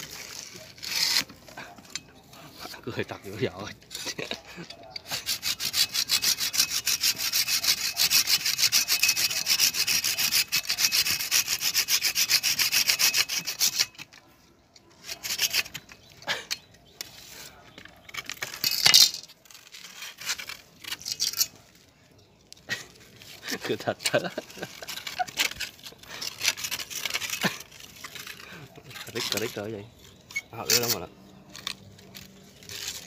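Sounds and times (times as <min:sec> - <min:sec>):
hand saw cutting roots: 0:00.0 - 0:14.2, 0:14.9 - 0:21.6, 0:22.7 - 0:33.0
handling of roots: 0:14.0 - 0:33.0.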